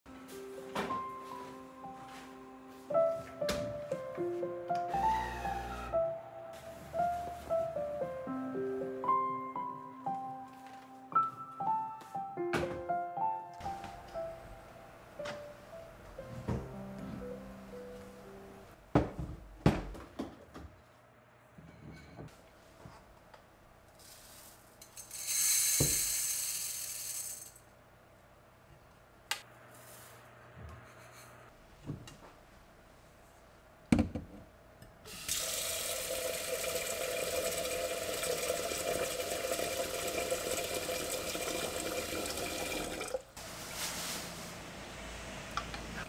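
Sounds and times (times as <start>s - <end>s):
tap water running into pot: 35.1s - 43.3s
water gushing: 35.1s - 43.4s.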